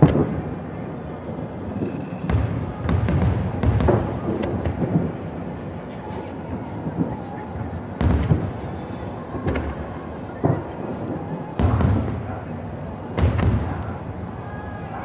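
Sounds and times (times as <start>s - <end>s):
fireworks booming: 0.0s - 15.0s.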